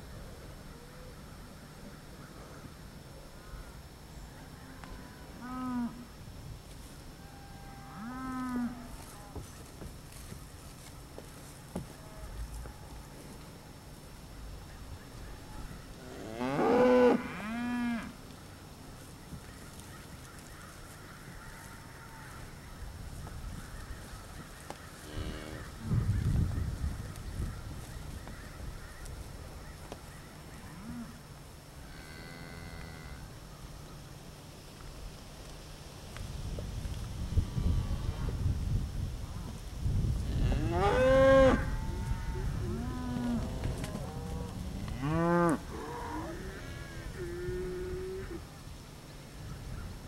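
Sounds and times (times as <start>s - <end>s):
cows mooing loudly: 16.1s - 18.1s, 40.4s - 48.4s
low outdoor rumble: 41.6s - 50.0s.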